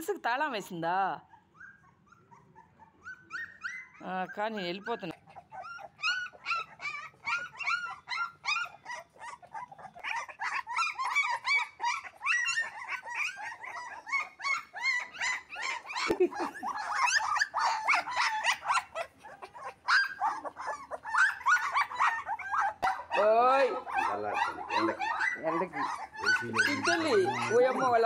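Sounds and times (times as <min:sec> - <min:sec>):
puppies whimpering and squeaking: 0:01.2 - 0:28.0.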